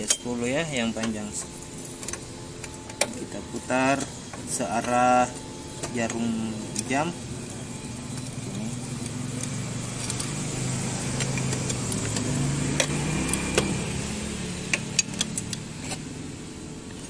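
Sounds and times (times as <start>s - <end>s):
vehicle engine humming: 0.0s - 17.0s
wrench clicking on bolts: 11.1s - 13.8s, 14.7s - 16.0s.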